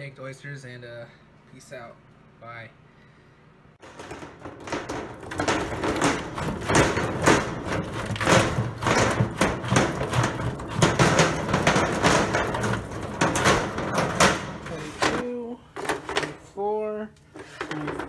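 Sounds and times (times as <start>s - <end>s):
oyster shells clattering in metal sink: 3.8s - 15.2s.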